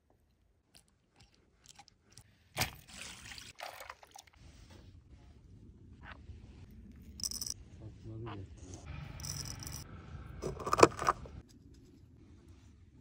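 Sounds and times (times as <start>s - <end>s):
wet sloshing and squelching: 1.0s - 4.4s.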